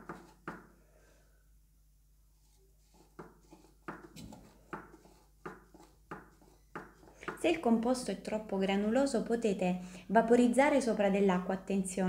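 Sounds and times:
fingers tapping and scraping mould: 0:03.0 - 0:07.4.

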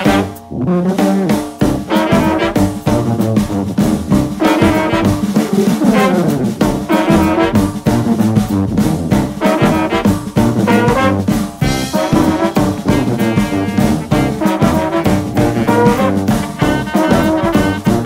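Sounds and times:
upbeat jazzy brass music: 0:00.0 - 0:18.0.

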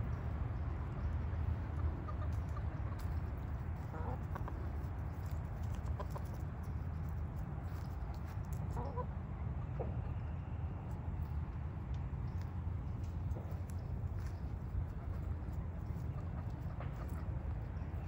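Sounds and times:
steady low rumble: 0:00.0 - 0:18.0
hens clucking: 0:00.9 - 0:07.2, 0:08.6 - 0:10.2, 0:12.3 - 0:18.0.

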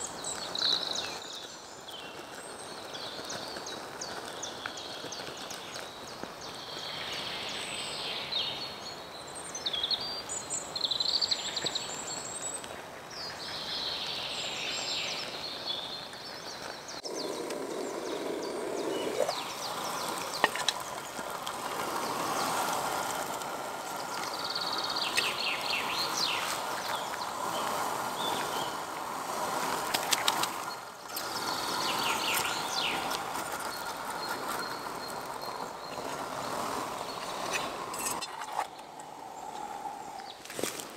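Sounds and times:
songbirds singing: 0:00.0 - 0:40.9
water heating hiss: 0:16.6 - 0:40.9.

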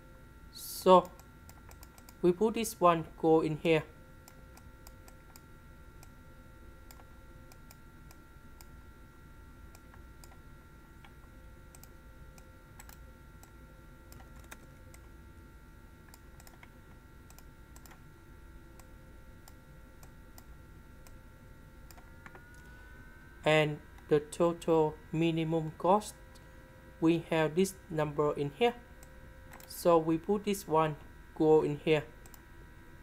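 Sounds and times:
low hum: 0:00.0 - 0:33.0
thin electrical whine: 0:00.0 - 0:33.0
light computer input clicks: 0:01.0 - 0:02.2, 0:11.0 - 0:15.0, 0:16.1 - 0:18.0.

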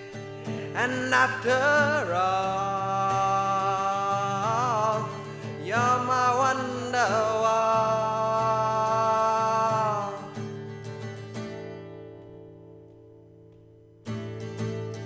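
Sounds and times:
acoustic guitar: 0:00.0 - 0:15.0
man singing: 0:00.4 - 0:10.6.

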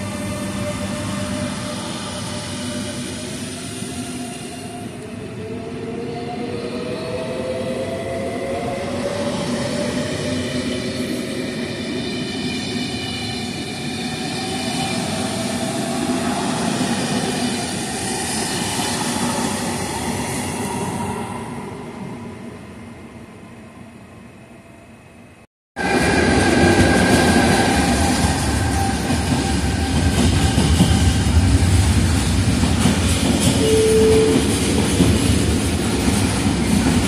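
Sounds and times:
train wheels rumbling on rails: 0:25.8 - 0:37.0.

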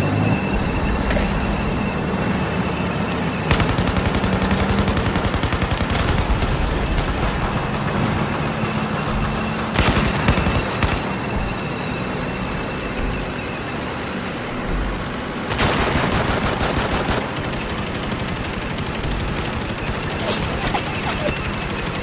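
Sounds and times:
rapid automatic gunfire: 0:03.5 - 0:11.2, 0:15.5 - 0:22.0.

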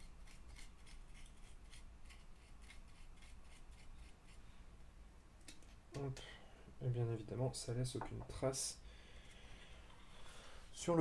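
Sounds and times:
brush scratching on wood: 0:00.0 - 0:04.4.

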